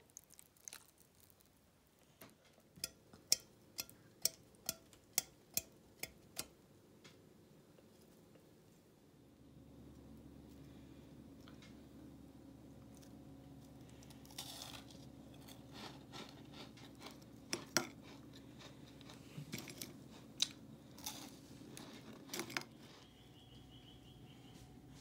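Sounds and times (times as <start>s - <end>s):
crispy wafers crunching: 0.0s - 2.2s, 12.8s - 23.5s
faint steady hum: 0.0s - 25.0s.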